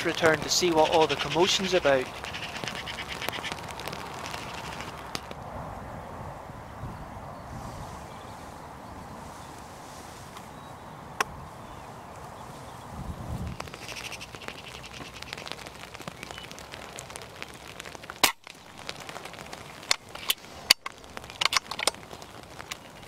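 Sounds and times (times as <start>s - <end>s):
drizzle hissing: 0.0s - 5.2s.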